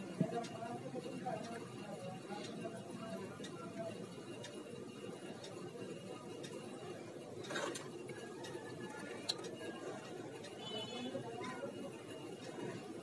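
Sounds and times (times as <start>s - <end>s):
faint ticking: 0.0s - 13.0s
low background noise: 0.0s - 13.0s.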